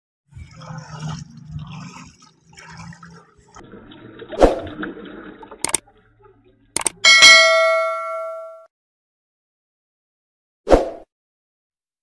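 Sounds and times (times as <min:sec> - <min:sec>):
paddle wheels churning water: 0:00.3 - 0:07.5.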